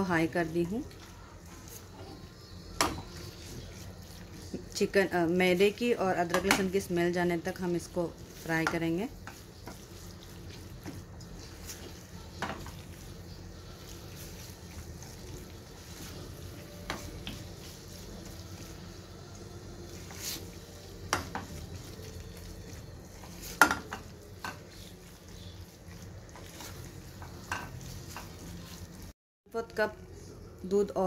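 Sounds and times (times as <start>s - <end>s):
filling sizzling in a pan: 0.0s - 29.2s
spatula scraping a pan: 0.8s - 29.1s
spatula knocking on pan: 21.1s - 21.7s.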